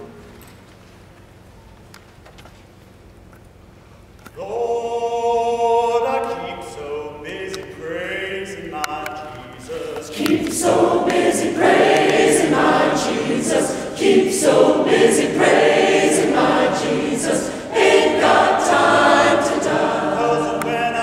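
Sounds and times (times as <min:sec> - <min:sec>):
choir singing: 0:09.6 - 0:21.0.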